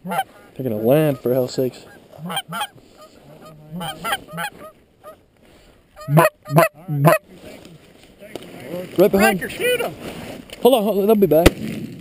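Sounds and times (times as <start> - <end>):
geese honking: 0.0 - 5.2, 5.9 - 7.3.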